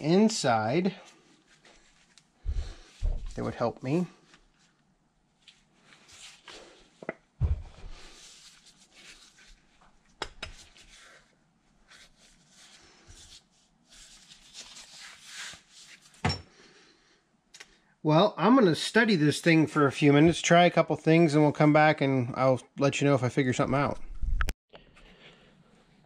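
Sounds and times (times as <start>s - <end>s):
soft scraping and rustling: 1.0s - 4.8s.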